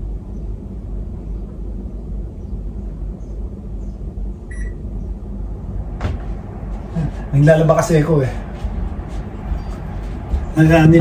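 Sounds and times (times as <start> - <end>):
steady low hum: 0.0 - 11.0
short electronic appliance beep: 4.5 - 4.8.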